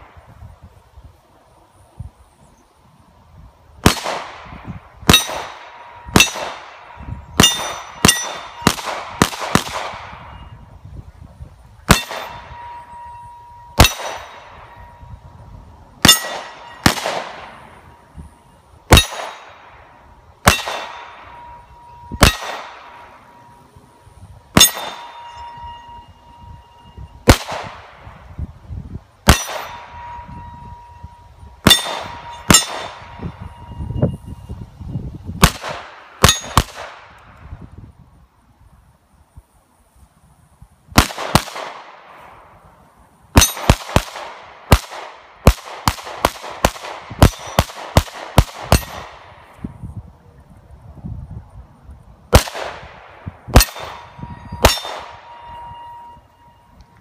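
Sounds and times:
gunshots: 3.8 - 10.3, 11.9 - 12.6, 13.8 - 14.8, 16.0 - 17.8, 18.9 - 19.7, 20.4 - 21.5, 22.2 - 23.2, 24.6 - 25.4, 27.2 - 28.0, 29.2 - 30.0, 31.6 - 33.2, 35.4 - 37.1, 41.0 - 42.2, 43.4 - 49.5, 52.3 - 55.5
steel target ringing: 5.1 - 8.8, 11.9 - 15.2, 16.0 - 23.8, 24.5 - 27.4, 29.3 - 34.5, 36.2 - 36.7, 43.4 - 43.7, 47.2 - 47.7, 48.7 - 49.1, 53.5 - 56.8.

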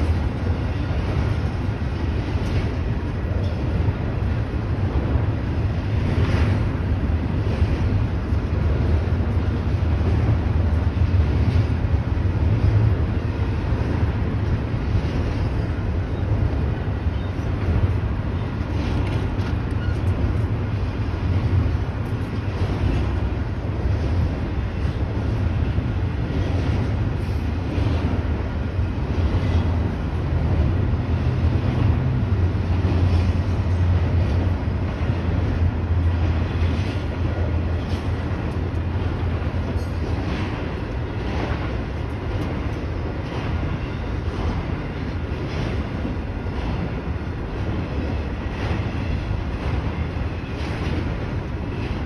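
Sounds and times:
steel wheels rumbling on rail: 0.0 - 52.0
train wheels clacking: 12.5 - 52.0.

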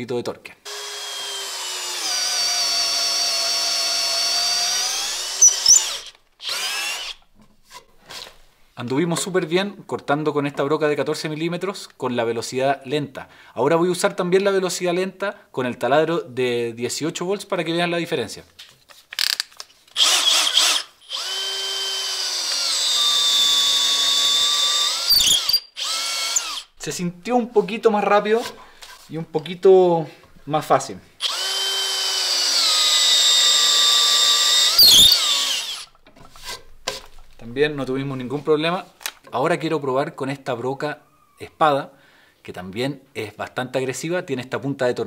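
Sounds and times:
cordless drill motor whine: 0.7 - 7.2, 20.0 - 26.7, 31.2 - 35.9.

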